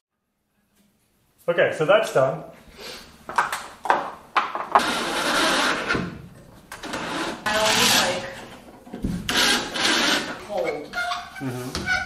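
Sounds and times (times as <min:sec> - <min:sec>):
cordless drill driving screws into wood: 0:09.3 - 0:10.4.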